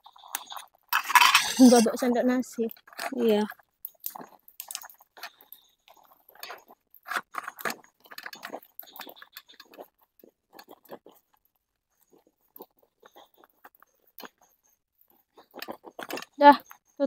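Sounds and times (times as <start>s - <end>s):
spatula scraping metal pot: 0.3s - 2.0s.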